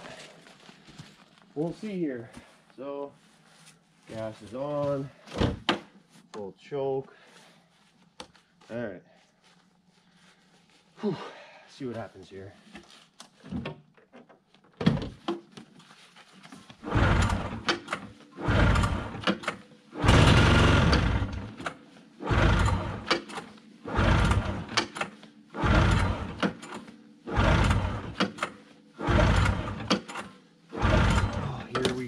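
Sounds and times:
engine turning over: 0:16.8 - 0:32.0
recoil pull starter yanked: 0:16.9 - 0:32.0.

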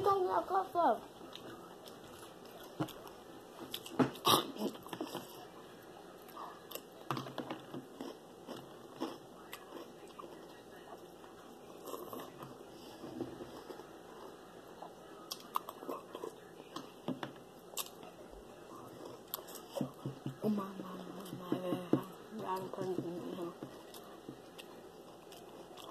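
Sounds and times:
person chewing crunchy cereal: 0:06.2 - 0:11.0, 0:11.7 - 0:14.3, 0:23.7 - 0:25.9.

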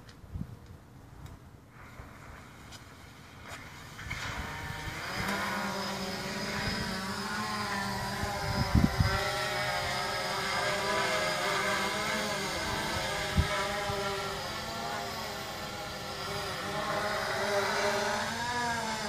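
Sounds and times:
drone motors buzzing whine: 0:01.8 - 0:19.0.

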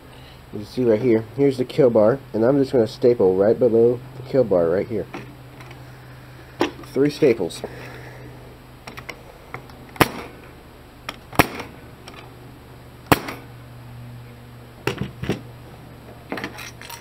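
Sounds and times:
air stapler shots: 0:09.9 - 0:10.4, 0:11.3 - 0:11.8, 0:13.1 - 0:13.5.

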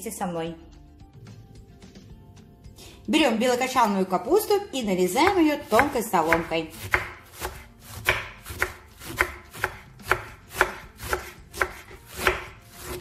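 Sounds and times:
knife slicing cabbage on wooden board: 0:05.2 - 0:13.0.

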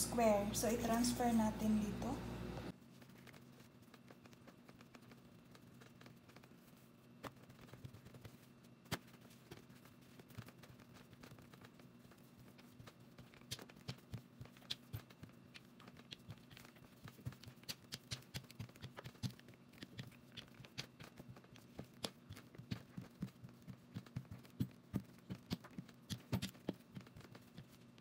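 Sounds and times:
rolling pin on dough clicking: 0:07.2 - 0:28.0.

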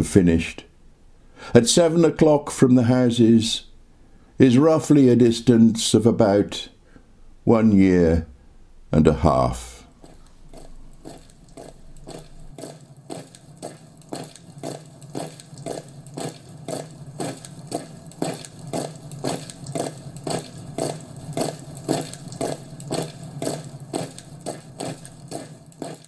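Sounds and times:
steady low hum: 0:05.5 - 0:26.0
regular crunching beats: 0:09.9 - 0:26.0.

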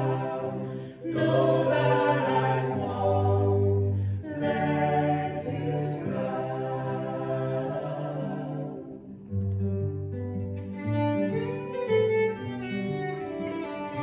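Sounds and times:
vocal trio singing in harmony: 0:00.0 - 0:09.2.

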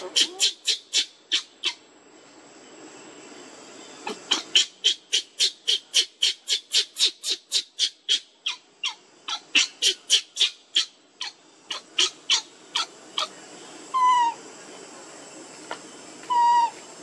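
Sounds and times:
baby monkey shrieking: 0:00.0 - 0:01.8, 0:04.1 - 0:13.3, 0:14.0 - 0:14.4, 0:16.3 - 0:16.8.

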